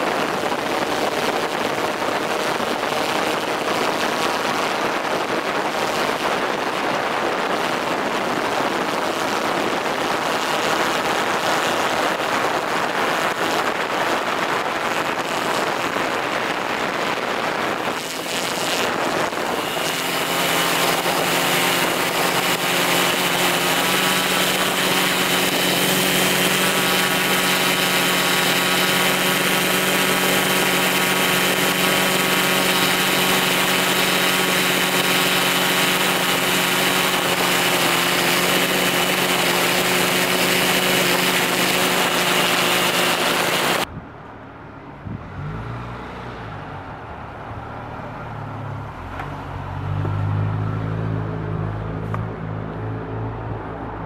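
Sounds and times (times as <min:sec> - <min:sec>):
street traffic rumble: 0:00.0 - 0:54.0
drone propellers whining: 0:07.6 - 0:47.2.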